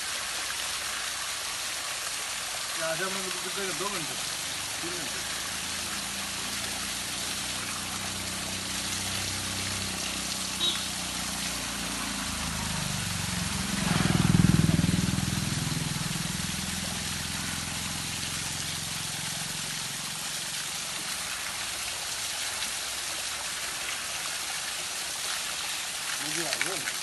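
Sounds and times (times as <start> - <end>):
waterfall splashing onto rocks: 0.0 - 27.0
vehicle engine passing: 3.8 - 20.3.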